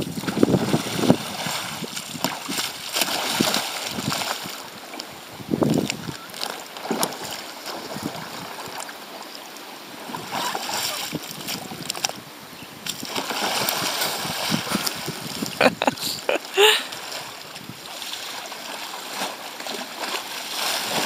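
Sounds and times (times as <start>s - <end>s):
wind on microphone: 0.0s - 6.4s, 7.2s - 8.8s, 10.0s - 17.9s
waves slapping against kayak hull: 0.0s - 9.0s, 10.0s - 12.2s, 12.8s - 21.0s
water splashing: 0.0s - 21.0s.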